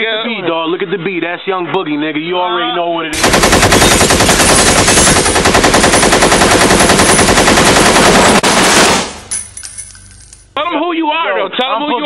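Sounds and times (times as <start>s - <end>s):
automatic gunfire: 3.2s - 9.3s.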